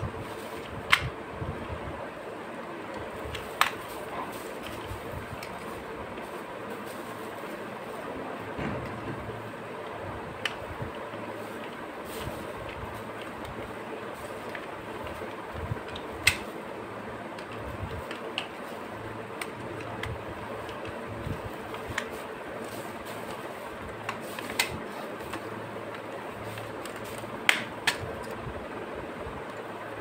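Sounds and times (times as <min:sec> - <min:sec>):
steady hum: 0:00.0 - 0:30.0.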